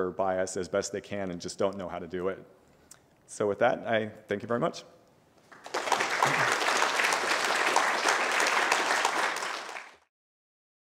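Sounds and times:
audience applauding: 0:05.5 - 0:10.1.

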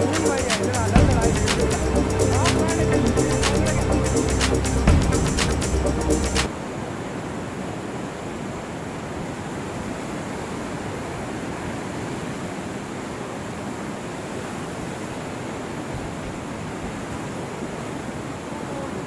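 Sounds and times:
river water rushing: 0:06.3 - 0:19.0.

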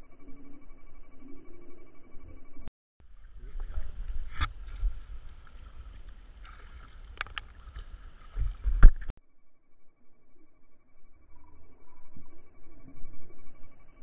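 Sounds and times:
water lapping against kayak hull: 0:03.0 - 0:09.1
low wind rumble: 0:03.1 - 0:09.1.

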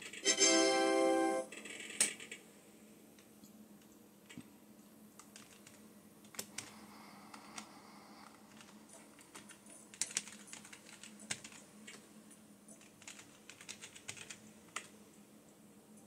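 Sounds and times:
typing on computer keyboard: 0:05.2 - 0:12.0, 0:12.7 - 0:14.9.

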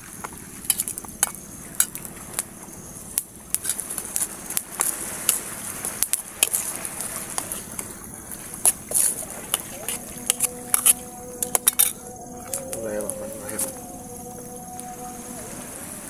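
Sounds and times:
campfire crackling and popping: 0:00.2 - 0:11.9
high-pitched background drone: 0:08.0 - 0:16.0.

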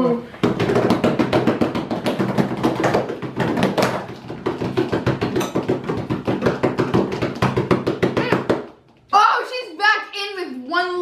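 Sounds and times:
hands drumming on wooden table: 0:00.4 - 0:08.9.

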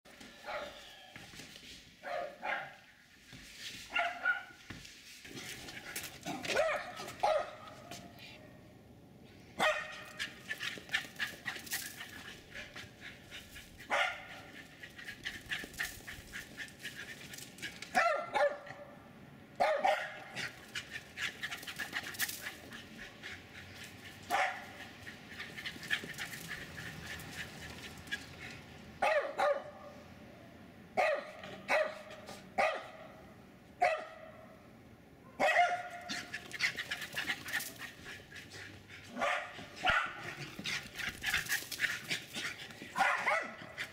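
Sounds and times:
dog barking sharply: 0:06.4 - 0:07.7, 0:09.6 - 0:10.2, 0:17.9 - 0:18.7, 0:19.6 - 0:20.3, 0:29.0 - 0:29.8, 0:31.0 - 0:33.0, 0:35.4 - 0:36.2, 0:39.2 - 0:40.2, 0:43.0 - 0:43.7.

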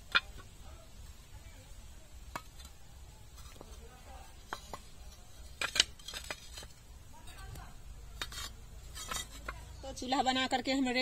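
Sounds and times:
bricks and tiles knocking: 0:00.0 - 0:00.5, 0:02.3 - 0:09.8.

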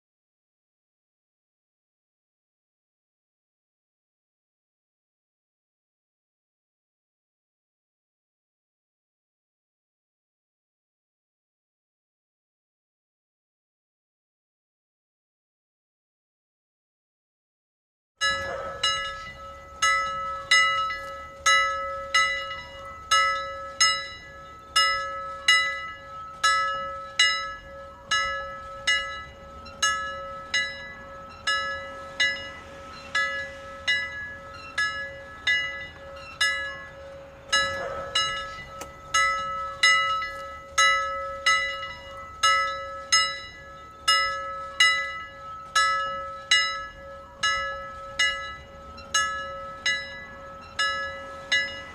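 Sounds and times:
temple bell ringing: 0:18.2 - 0:51.9.

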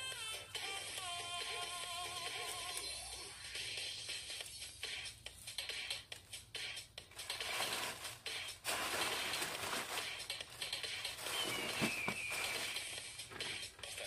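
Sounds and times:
plastic ribbon and bag rustling: 0:07.2 - 0:13.0
short falling whistle: 0:11.4 - 0:12.6.

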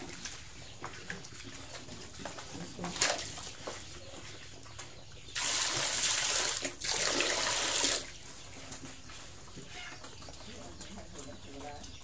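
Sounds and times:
hose water splashing into tray: 0:05.4 - 0:08.1.

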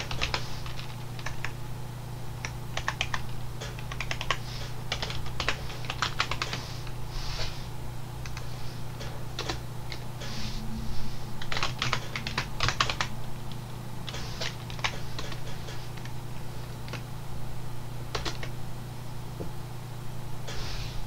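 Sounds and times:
typing on computer keyboard: 0:00.0 - 0:01.6, 0:02.4 - 0:06.6, 0:11.5 - 0:13.1, 0:14.1 - 0:16.1, 0:18.1 - 0:18.5
steady low hum: 0:00.0 - 0:21.0.

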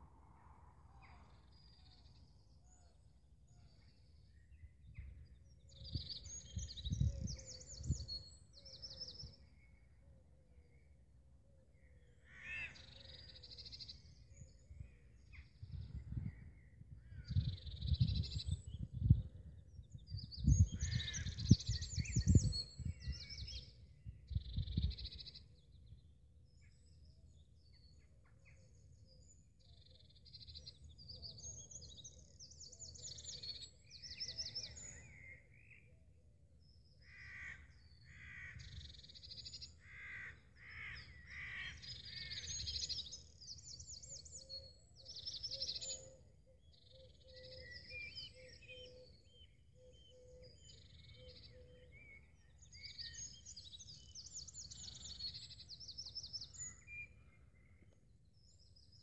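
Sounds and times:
small birds chirping: 0:11.8 - 0:36.0, 0:36.7 - 0:59.0
low rumbles on microphone: 0:15.6 - 0:23.4
crows cawing: 0:37.1 - 0:38.6, 0:39.8 - 0:41.8.

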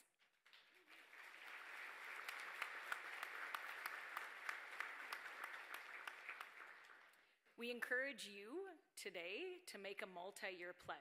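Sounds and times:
audience applauding: 0:00.4 - 0:07.3.

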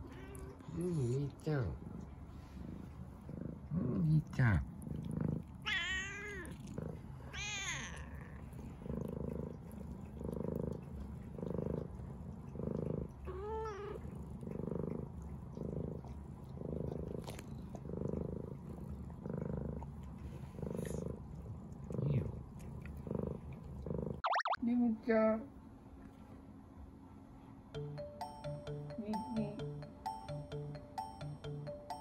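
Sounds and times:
cat purring: 0:00.0 - 0:24.2
cat meowing: 0:05.6 - 0:06.6, 0:07.3 - 0:08.3.

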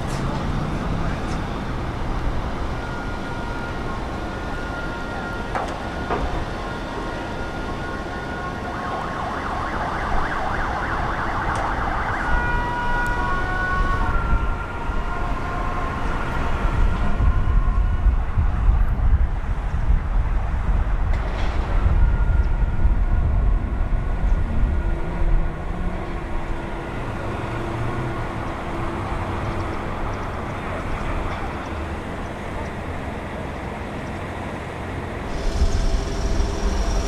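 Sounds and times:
excavator diesel engine rumbling: 0:00.0 - 0:09.4, 0:11.9 - 0:37.0
high whining tones: 0:35.2 - 0:37.0.

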